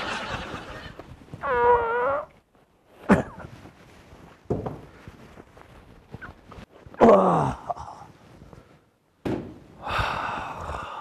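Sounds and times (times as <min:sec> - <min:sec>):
person moaning: 0:07.0 - 0:08.1
soft thud: 0:09.2 - 0:09.7.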